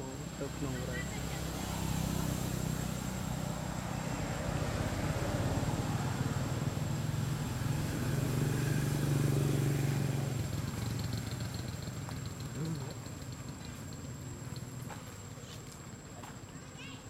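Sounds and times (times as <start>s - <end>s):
vehicle engine running: 2.7s - 15.2s.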